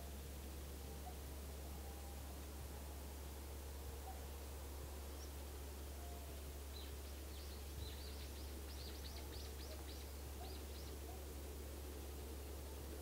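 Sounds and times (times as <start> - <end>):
steady low hum: 0.0 - 13.0
bird chirping: 6.7 - 11.2.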